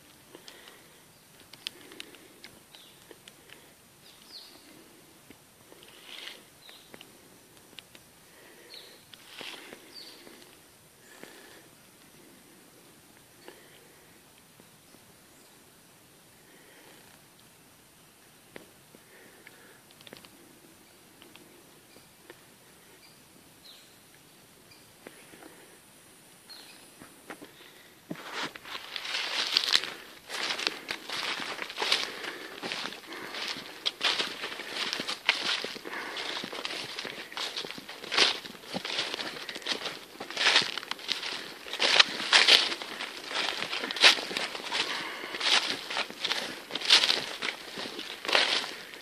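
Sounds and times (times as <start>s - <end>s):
small ticks: 1.4s - 4.4s, 19.4s - 20.4s, 21.2s - 22.4s
bird chirping: 4.0s - 4.8s, 9.8s - 10.4s, 26.4s - 27.0s
footsteps crunching on leaves: 28.1s - 49.0s.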